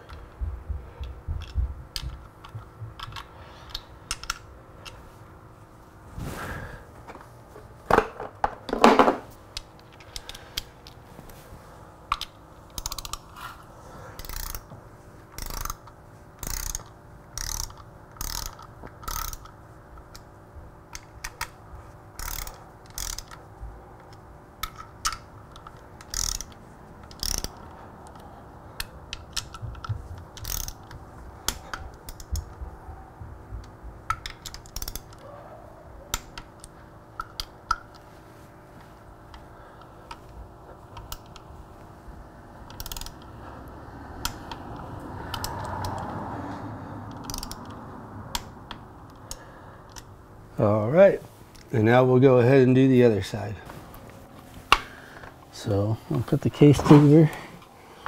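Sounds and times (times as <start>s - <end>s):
socket ratchet clicking: 1.0s - 5.0s, 12.1s - 13.4s, 14.2s - 14.7s, 15.3s - 20.3s, 20.9s - 32.6s, 33.6s - 35.2s, 36.1s - 38.1s, 39.3s - 41.5s, 42.6s - 43.4s, 44.2s - 46.1s, 47.0s - 50.2s.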